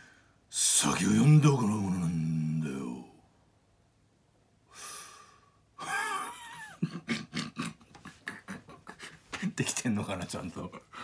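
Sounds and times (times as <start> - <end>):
man taking a sharp breath: 4.7 - 5.6
man sighing: 4.7 - 6.2
man laughing breathily: 5.8 - 9.6, 10.7 - 11.0.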